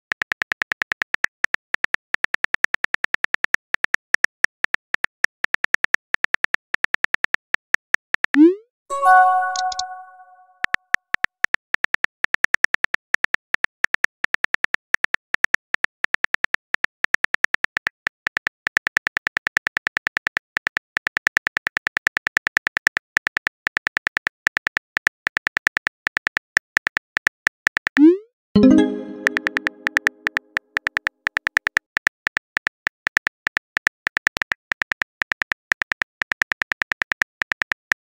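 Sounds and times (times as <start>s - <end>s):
keyboard tap clicks: 9.3s - 10.3s.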